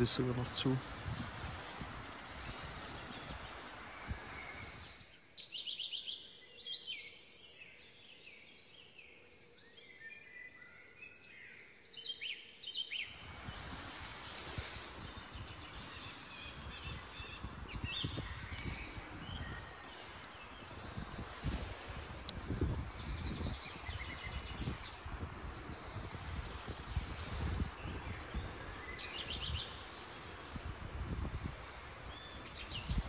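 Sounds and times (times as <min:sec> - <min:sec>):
small birds singing and chirping: 0:00.0 - 0:33.0
gloved hands rustling in soil: 0:00.8 - 0:05.0, 0:13.2 - 0:33.0.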